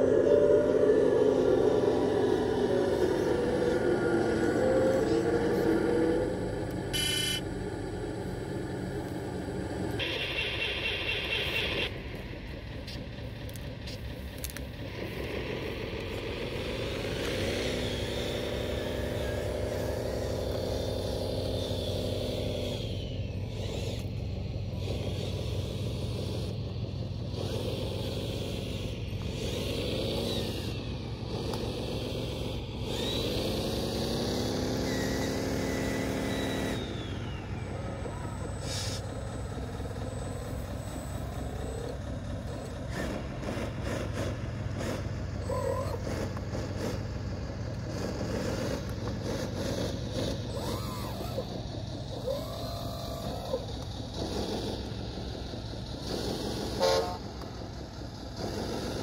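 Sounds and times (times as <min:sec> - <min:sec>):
low hum: 0:00.0 - 0:33.4
model machine engines revving: 0:00.0 - 0:59.0
high tone: 0:06.9 - 0:07.4.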